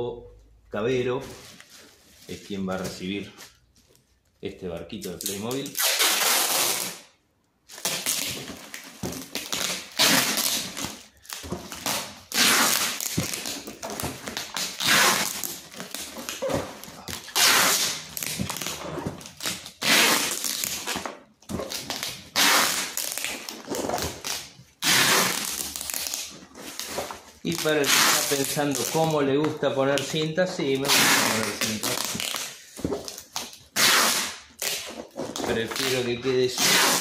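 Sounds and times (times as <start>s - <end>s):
packing tape pulled off roll: 5.2s - 7.1s, 7.7s - 29.2s, 30.0s - 37.0s
plastic crinkling: 7.6s - 37.0s.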